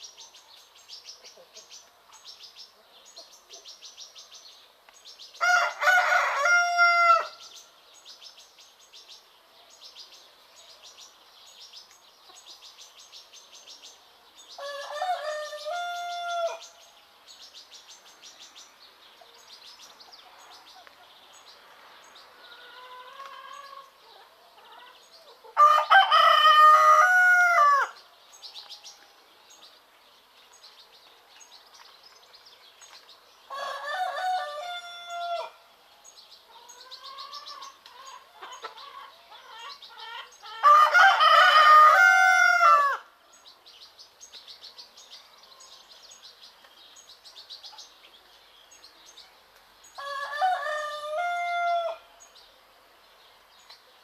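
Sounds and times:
small birds chirping: 0.0 - 51.2, 51.8 - 54.0
roosters crowing: 5.4 - 7.4, 14.6 - 16.8, 22.4 - 24.0, 24.8 - 28.0, 33.5 - 35.6, 36.8 - 43.1, 50.0 - 52.2.

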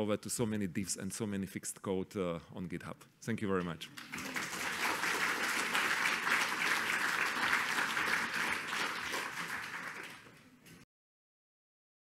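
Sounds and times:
audience applauding: 4.0 - 10.5.

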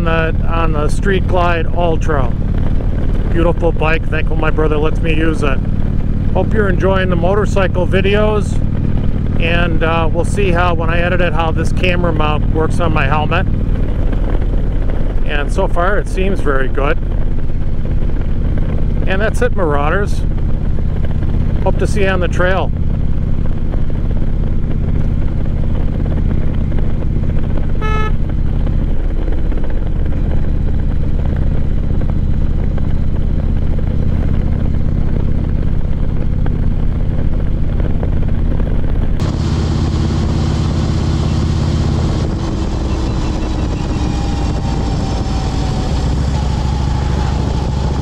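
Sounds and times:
motorcycle engine running: 0.0 - 48.0
short high tone: 27.8 - 28.2.

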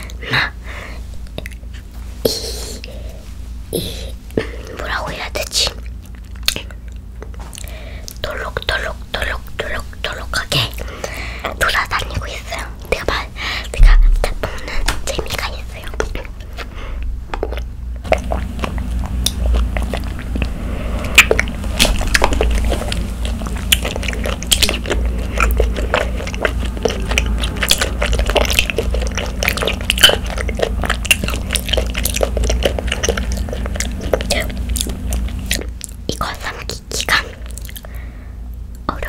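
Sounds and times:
wet chewing clicks and smacks: 1.2 - 1.7, 5.4 - 9.8, 17.3 - 38.0.

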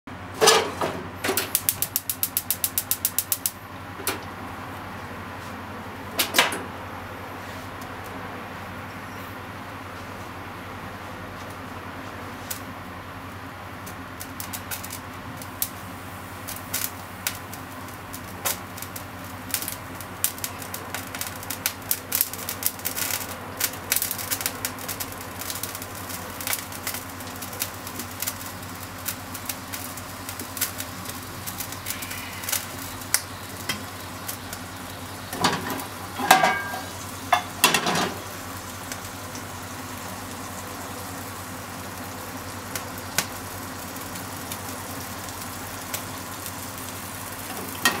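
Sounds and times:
steady low hum: 0.1 - 48.0
droplets crackling in frying pan: 1.3 - 3.6, 12.3 - 48.0.

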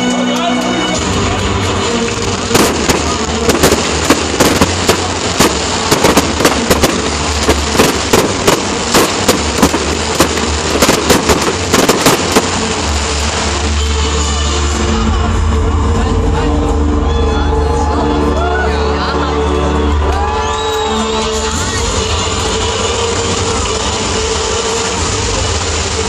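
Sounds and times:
fireworks bangs and crackles: 1.0 - 14.6, 21.9 - 26.0.

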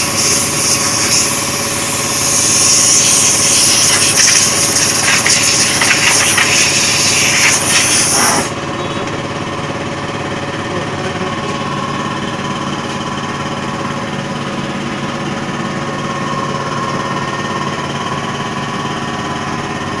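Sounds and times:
spray gun air hiss: 0.0 - 8.5
air compressor humming: 0.0 - 20.0.

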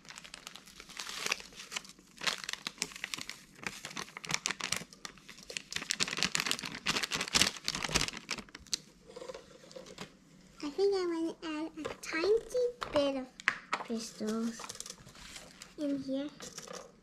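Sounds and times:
plastic sachet crinkling: 0.0 - 8.8.

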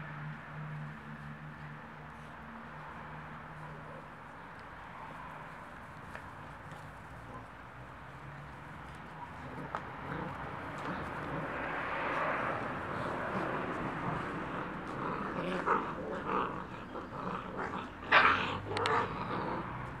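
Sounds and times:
puppies growling: 8.5 - 20.0.

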